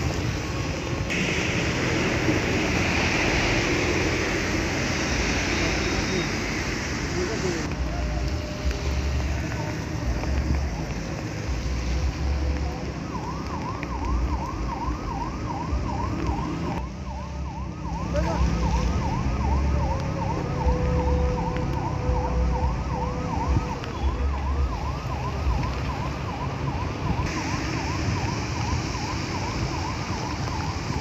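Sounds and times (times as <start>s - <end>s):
emergency siren yelping: 7.2s - 31.0s.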